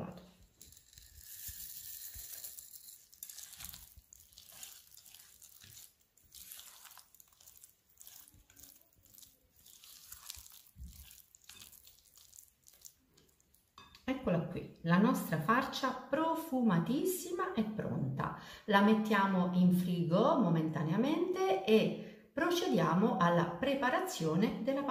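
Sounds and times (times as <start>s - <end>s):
spatula scraping and squishing in bowl: 0.4s - 14.0s.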